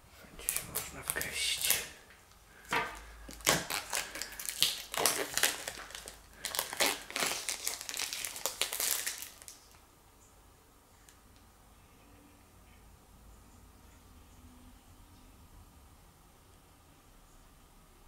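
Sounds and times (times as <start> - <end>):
plastic shrink-wrap crinkling: 0.4 - 9.8.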